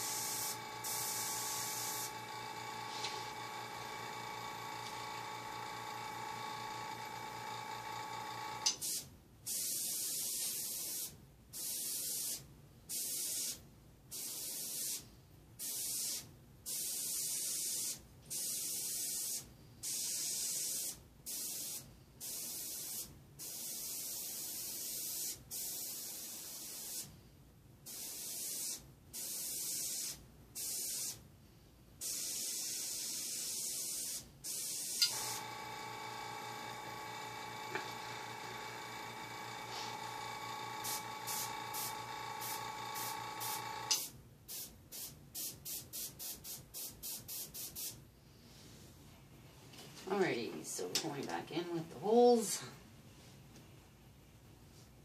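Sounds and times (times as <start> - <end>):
airbrush spraying hisses: 0.0 - 2.2, 8.8 - 13.6, 14.2 - 27.1, 32.0 - 35.4, 40.8 - 48.0
air compressor hum: 0.0 - 9.0, 34.5 - 44.1.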